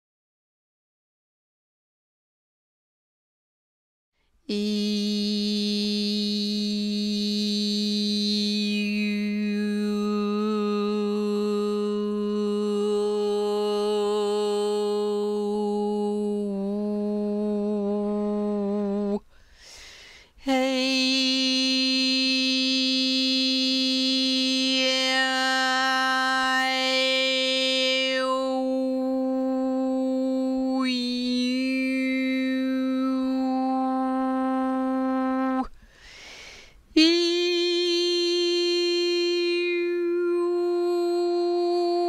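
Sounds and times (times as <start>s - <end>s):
person chanting long notes: 4.5s - 19.2s, 20.5s - 35.7s.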